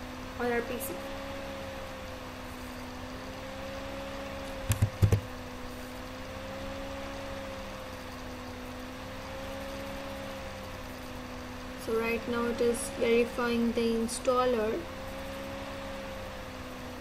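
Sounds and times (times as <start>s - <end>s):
steady hum with wavering whine: 0.0s - 17.0s
computer mouse double-clicks: 4.7s - 5.2s.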